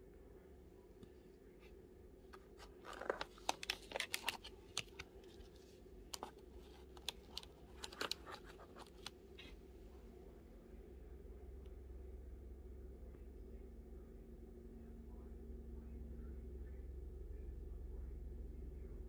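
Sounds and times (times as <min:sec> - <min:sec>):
faint steady hum: 0:00.0 - 0:19.0
fingers crackling plastic holder: 0:02.4 - 0:05.5, 0:06.1 - 0:09.2.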